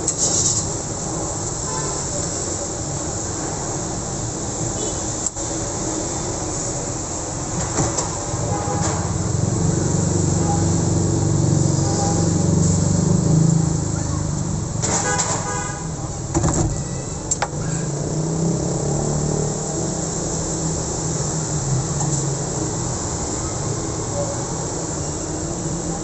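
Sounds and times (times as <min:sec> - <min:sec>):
motorcycle and minibus engines: 0:02.4 - 0:26.0
vehicle horn: 0:04.8 - 0:05.1, 0:08.4 - 0:09.2, 0:11.8 - 0:12.4, 0:14.9 - 0:16.1.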